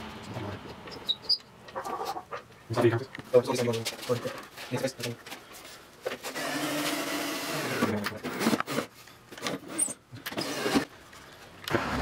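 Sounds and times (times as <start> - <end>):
cordless drill driving screws: 6.3 - 8.9, 10.3 - 10.9.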